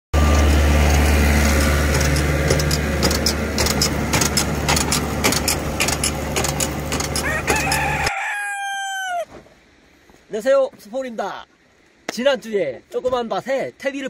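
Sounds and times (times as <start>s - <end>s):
tractor engine running: 0.1s - 8.1s.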